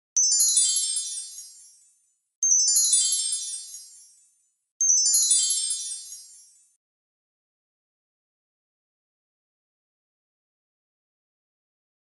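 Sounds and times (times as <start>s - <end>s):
tinkling magic chime sparkle: 0.2s - 6.8s.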